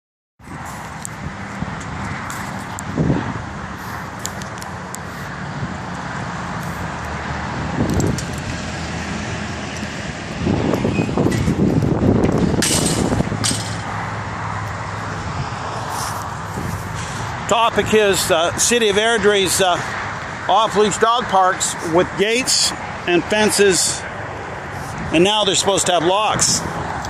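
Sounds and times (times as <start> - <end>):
highway traffic hum: 0.4 - 27.0
chain-link gate clinking: 12.6 - 13.9.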